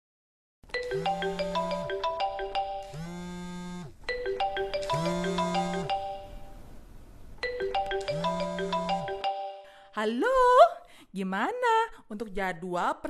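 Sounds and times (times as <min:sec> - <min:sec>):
marimba ringtone: 0:00.7 - 0:03.1, 0:04.1 - 0:06.6, 0:07.4 - 0:09.8
phone vibrating buzz: 0:00.8 - 0:06.6, 0:07.9 - 0:09.3.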